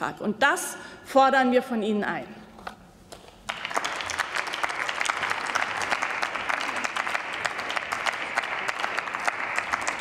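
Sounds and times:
crowd applauding: 3.5s - 10.0s.

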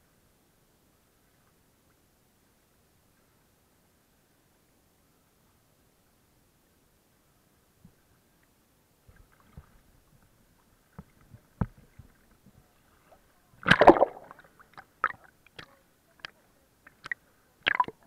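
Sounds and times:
water sloshing and splashing: 13.0s - 16.3s, 16.9s - 18.0s.

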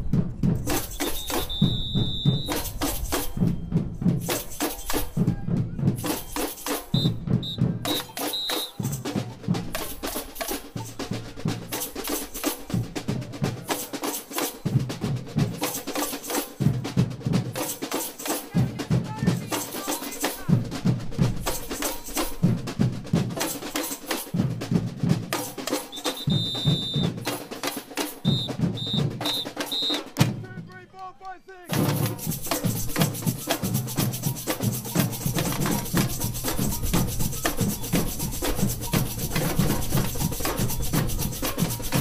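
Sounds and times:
samba drum band playing: 0.0s - 30.8s, 31.6s - 42.0s
whistle blasts: 0.8s - 3.8s, 6.0s - 8.9s, 25.9s - 27.3s, 28.2s - 30.2s.

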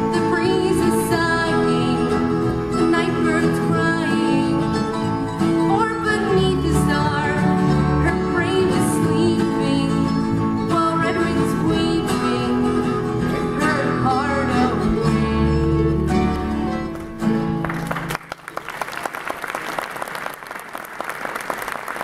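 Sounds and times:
woman singing: 0.0s - 16.0s
bluegrass band playing: 0.0s - 18.2s
audience applause: 17.5s - 22.0s.

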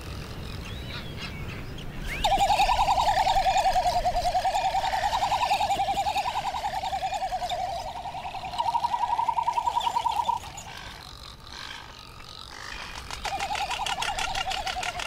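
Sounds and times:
bird warbling trill: 2.0s - 15.0s.

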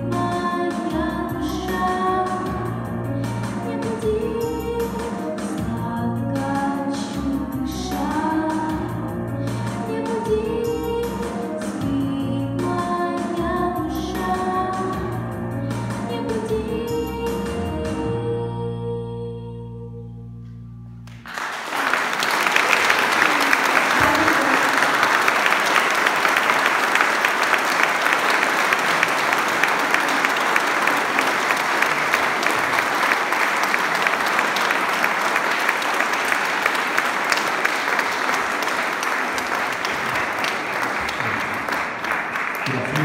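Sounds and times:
audience applauding: 21.1s - 43.0s.

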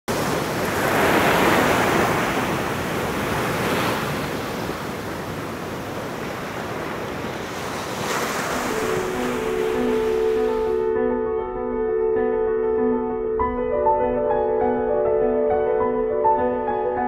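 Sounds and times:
ocean surf breaking on beach: 0.1s - 10.9s.

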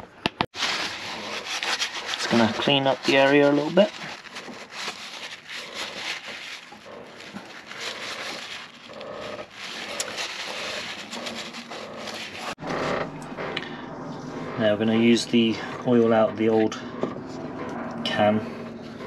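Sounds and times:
paper towel rubbing: 0.6s - 12.6s.

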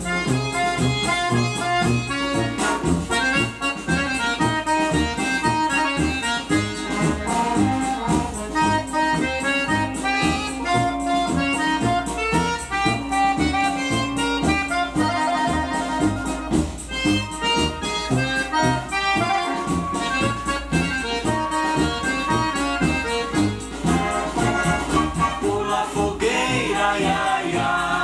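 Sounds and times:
accordion-led folk music with band: 0.0s - 28.0s.

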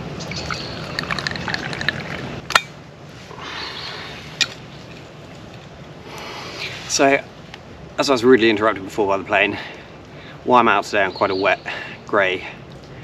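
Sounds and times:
tea pouring into a cup: 0.4s - 2.2s.

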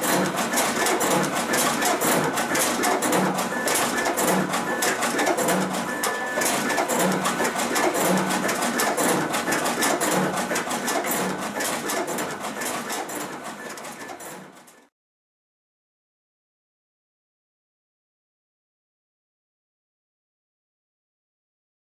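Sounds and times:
steady machine hum: 0.0s - 13.6s
paper feeder clicking and rattling: 0.0s - 14.8s.

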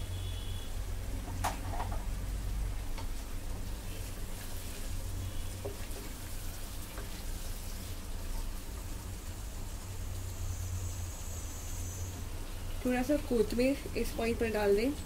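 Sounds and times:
vegetables sizzling in oil: 0.0s - 15.0s.

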